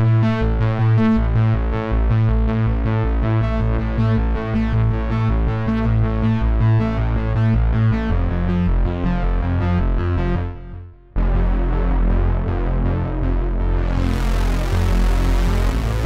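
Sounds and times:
deep synth bass line: 0.0 - 16.0
synthesizer arpeggio: 13.9 - 16.0.

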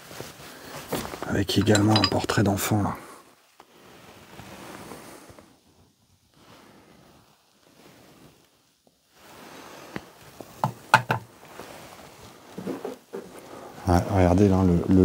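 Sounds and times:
faint room noise: 0.0 - 15.0
sharp knocks and clicks: 10.6 - 11.3.

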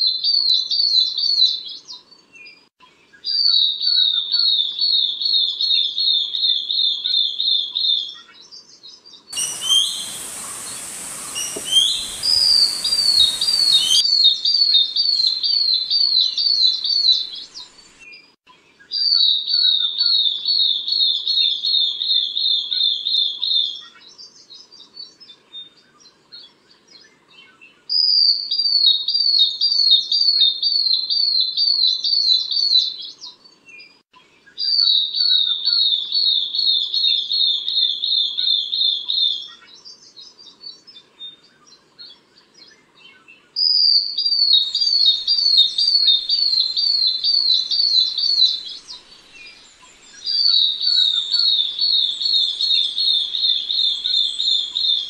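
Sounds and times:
bird whistled notes: 9.4 - 17.7, 43.8 - 55.0
faint bird chirps: 9.4 - 18.0, 38.8 - 55.0.

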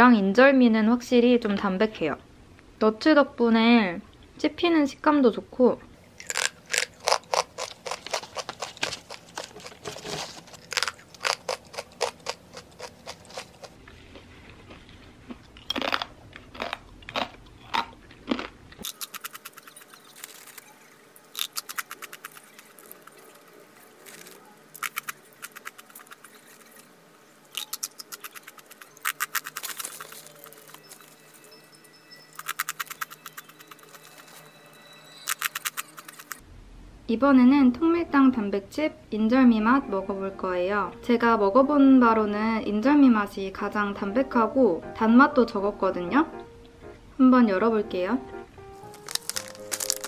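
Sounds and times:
crunching and chewing chip: 6.2 - 26.9, 27.5 - 31.6, 32.3 - 34.5, 35.2 - 36.4, 48.8 - 50.0.

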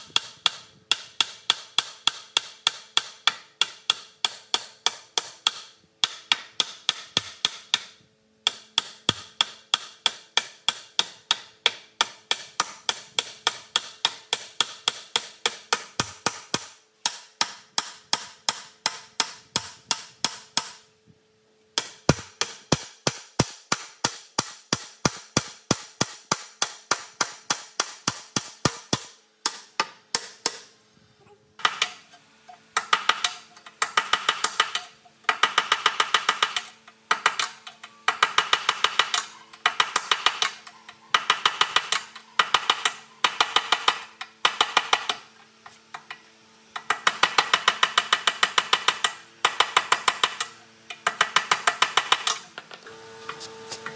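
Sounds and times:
hammer striking metal: 21.8 - 30.7.

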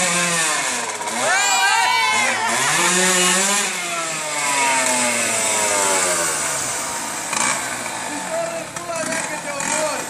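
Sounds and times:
motocross engine revs dropping: 0.0 - 10.0.

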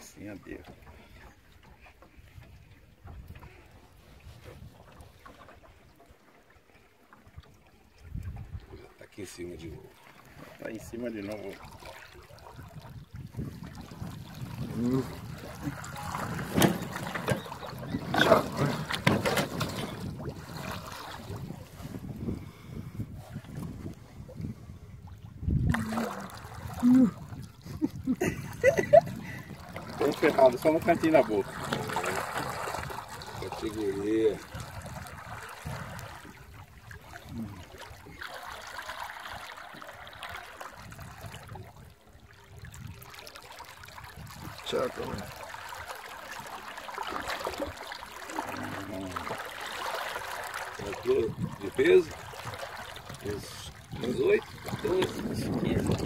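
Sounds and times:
fish thrashing and splashing water: 10.0 - 22.2, 25.6 - 56.0
fish splashing in water: 25.7 - 27.7, 34.4 - 41.8, 45.2 - 53.2.

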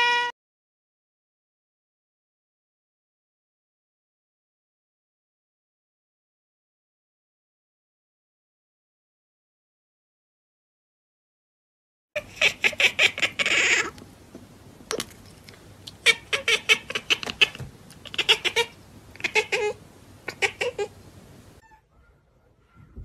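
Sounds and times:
cat chattering: 12.2 - 14.0, 15.9 - 21.0.

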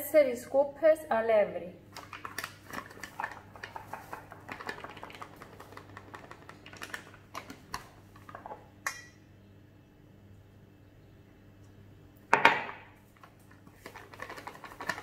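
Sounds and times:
paper bag crinkling: 2.0 - 8.4, 13.2 - 15.0.

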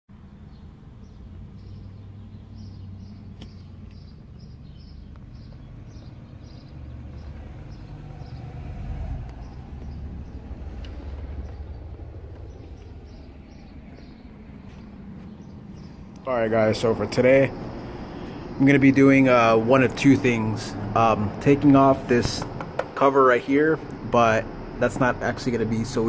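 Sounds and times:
bird chirping: 0.1 - 26.0
low rumble: 4.5 - 22.8, 23.6 - 26.0.

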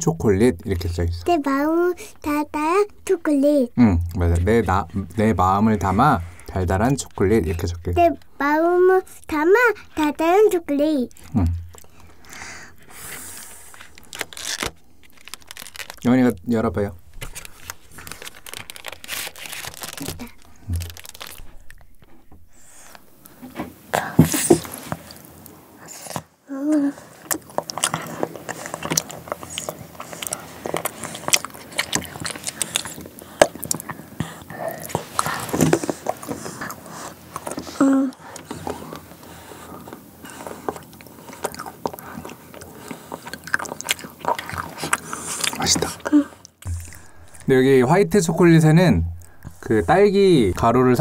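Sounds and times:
crunching chocolate: 10.6 - 23.4, 27.2 - 37.7, 39.8 - 46.0
packaging crinkling and tearing: 11.1 - 23.4, 27.3 - 34.0
low thump: 46.7 - 51.0.

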